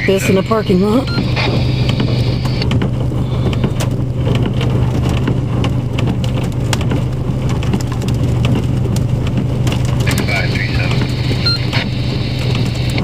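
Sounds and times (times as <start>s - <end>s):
heavy rain: 0.0s - 13.0s
vehicle engine hum: 0.0s - 13.0s
hailstones ticking: 1.8s - 13.0s.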